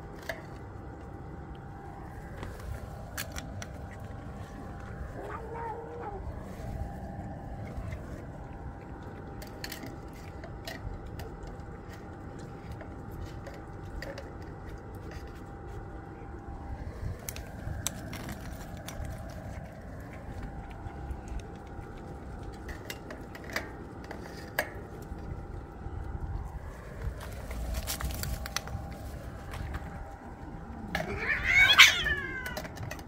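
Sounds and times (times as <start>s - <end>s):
cats crunching food: 0.0s - 33.0s
faint hum: 0.0s - 33.0s
low rumble: 0.0s - 33.0s
cat meow: 5.1s - 6.4s, 30.9s - 32.8s.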